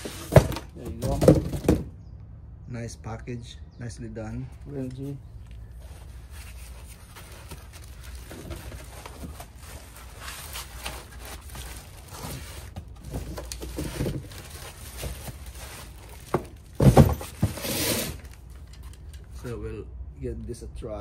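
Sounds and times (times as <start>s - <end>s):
plastic wrap and foam rustling: 0.0s - 1.8s, 5.6s - 18.8s
crinkling: 5.4s - 19.4s.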